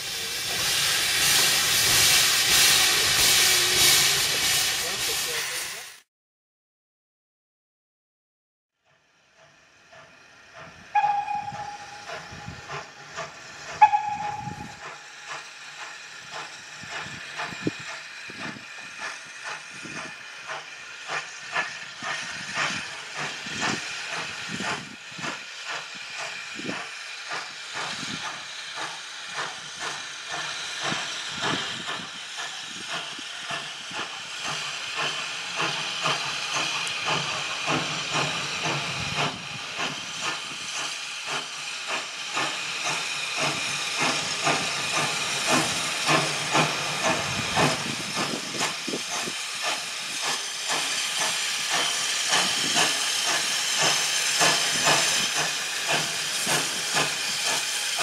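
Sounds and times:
steam locomotive whistle toots: 0:00.0 - 0:05.8, 0:10.9 - 0:13.0, 0:13.7 - 0:15.2
steam locomotive exhaust beats: 0:00.0 - 0:05.9, 0:08.9 - 0:58.0
steam hissing: 0:00.0 - 0:06.0, 0:09.4 - 0:58.0.

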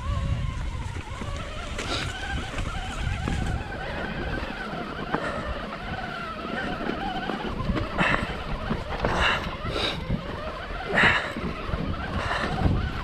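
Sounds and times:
bike tyre noise: 0:00.0 - 0:13.0
wavering whine: 0:00.0 - 0:13.0
wind buffeting microphone: 0:00.0 - 0:13.0.

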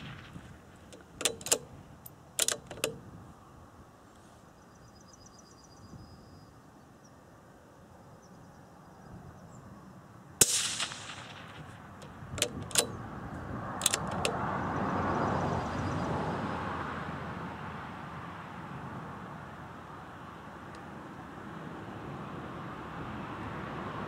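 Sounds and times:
rifle bolt clicks: 0:00.9 - 0:03.0, 0:10.4 - 0:13.0, 0:13.8 - 0:14.4
suppressed rifle shot: 0:10.4 - 0:13.0.

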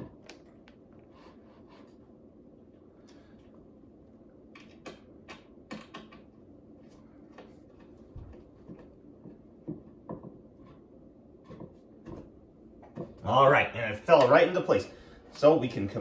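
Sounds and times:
desk parts clicking and knocking: 0:04.6 - 0:06.3.

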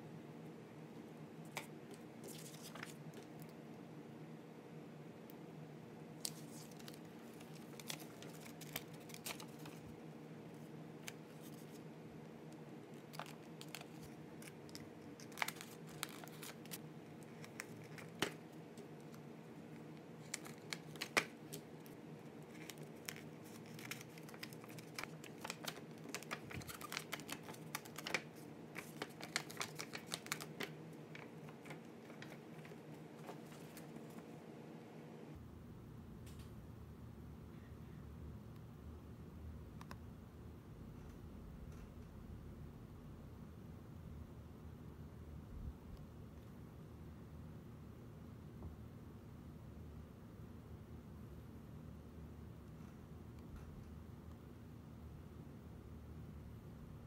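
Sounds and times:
faint low hum: 0:00.0 - 0:57.0
paper rustling and crinkling: 0:01.5 - 0:03.4, 0:06.2 - 0:10.0, 0:11.0 - 0:11.8, 0:12.9 - 0:19.2, 0:20.2 - 0:34.3
paper crackles and taps: 0:06.2 - 0:09.8, 0:13.0 - 0:19.2, 0:20.2 - 0:21.7, 0:22.5 - 0:34.2.

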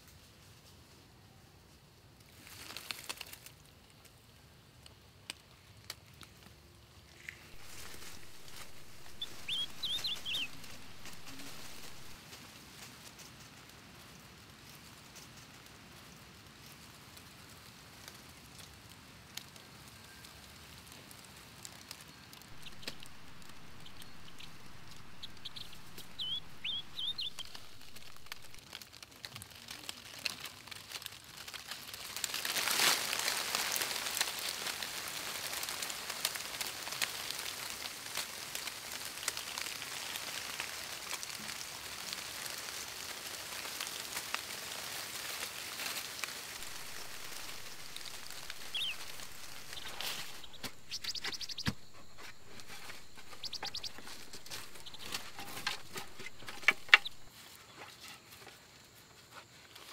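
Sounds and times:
rain patter on leaves: 0:00.0 - 0:57.4
bird twitter: 0:07.6 - 0:12.2, 0:22.5 - 0:28.6, 0:46.6 - 0:57.3.

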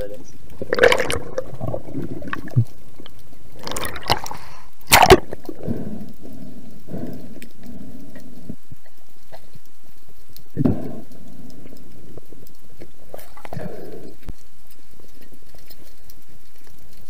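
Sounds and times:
underwater gurgling and bubbling: 0:00.6 - 0:08.7.

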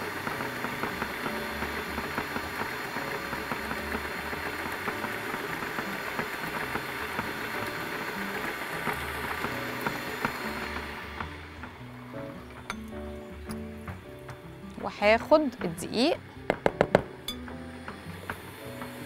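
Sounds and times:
electric stand mixer running: 0:00.0 - 0:13.2.

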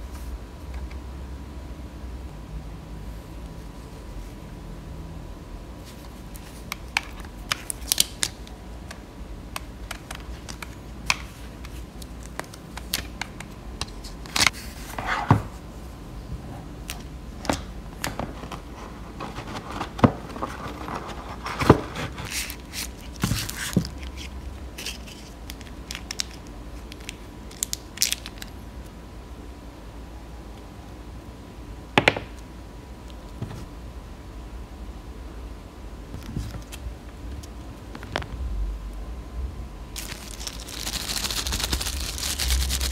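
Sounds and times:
packaging rustle: 0:40.0 - 0:42.9.

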